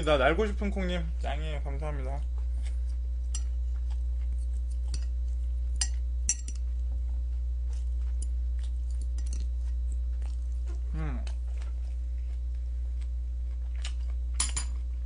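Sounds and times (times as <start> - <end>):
low electrical hum: 0.0 - 15.0
chopsticks clinking on plate: 3.3 - 3.6, 5.8 - 6.7.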